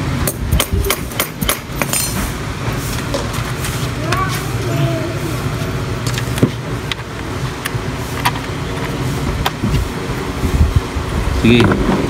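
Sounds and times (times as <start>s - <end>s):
steady low hum: 0.0s - 12.0s
tools and metal parts clicking: 0.5s - 2.3s.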